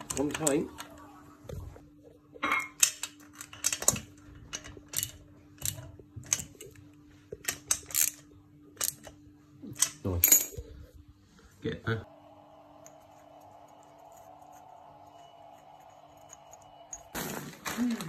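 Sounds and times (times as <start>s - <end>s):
faint steady hum: 0.0s - 17.2s
tools and metal parts clinking: 2.4s - 6.8s, 7.4s - 10.7s.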